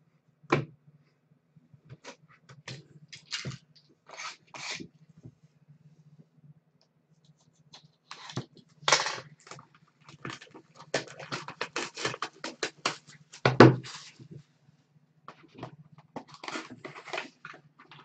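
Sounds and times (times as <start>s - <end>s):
wrapping rustling and tearing: 8.1s - 14.2s, 16.2s - 18.0s.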